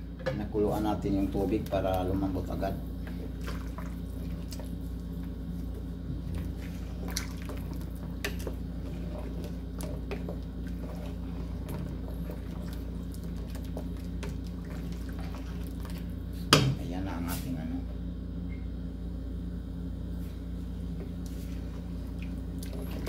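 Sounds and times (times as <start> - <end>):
steady low hum: 0.0 - 23.0
stew sloshing in a pot: 1.2 - 16.6, 21.1 - 23.0.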